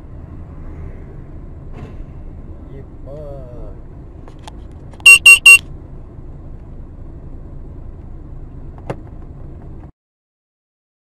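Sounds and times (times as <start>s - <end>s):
car rumbling on road: 0.0s - 9.9s
loud electronic beeps: 5.0s - 5.6s.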